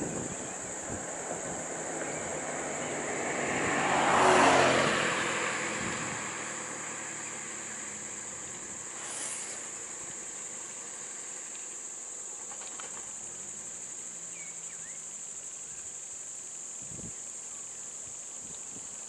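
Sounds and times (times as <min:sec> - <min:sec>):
vehicle passing by: 0:00.0 - 0:11.5
high-pitched insect drone: 0:06.6 - 0:18.9.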